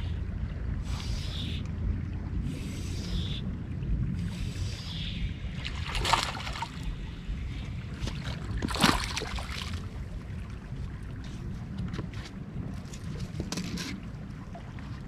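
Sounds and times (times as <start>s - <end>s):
fish splashing in water: 5.6s - 6.9s, 8.1s - 9.9s.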